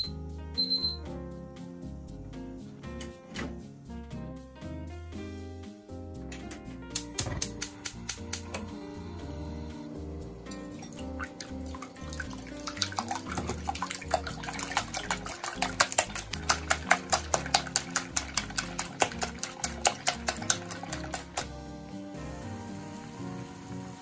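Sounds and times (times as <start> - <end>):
background music: 0.0 - 24.0
whisk clicking against glass bowl: 10.6 - 21.6.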